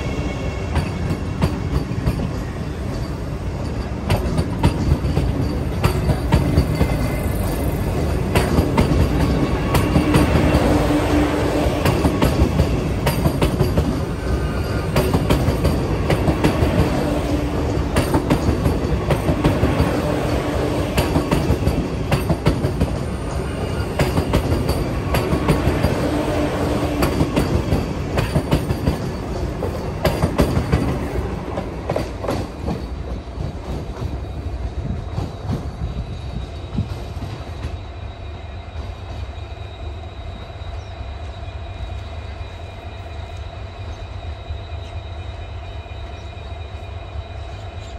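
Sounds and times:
train low rumble: 0.0s - 47.9s
train wheels clattering over rail joints: 0.7s - 11.0s, 11.6s - 37.8s.

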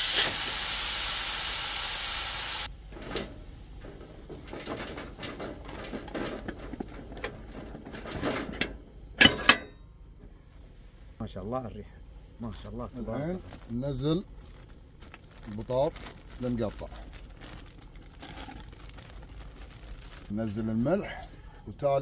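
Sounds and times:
pressure cooker steam hissing: 0.0s - 2.7s
metal lid clanks: 2.9s - 10.0s
metal lid clicks and knocks: 4.3s - 9.8s.

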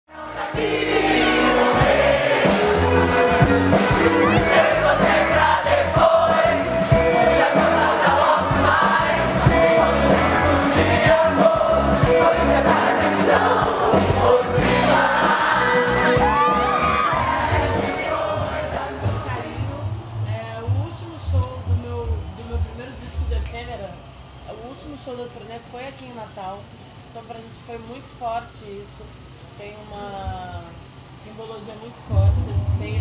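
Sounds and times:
backing voices singing: 0.1s - 20.4s
live band music: 0.2s - 19.6s.

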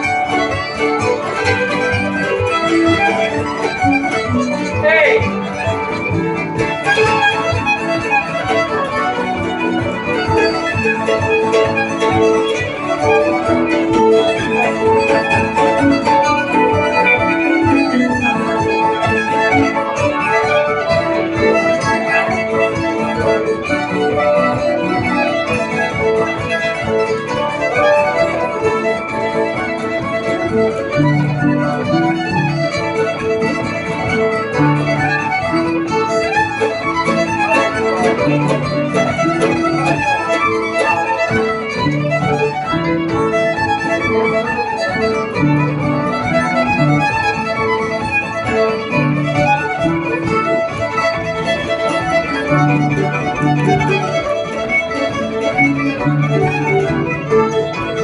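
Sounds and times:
acoustic guitar chords: 0.0s - 7.3s
bowed fiddle tune: 0.0s - 58.0s
mandolin: 0.0s - 58.0s.

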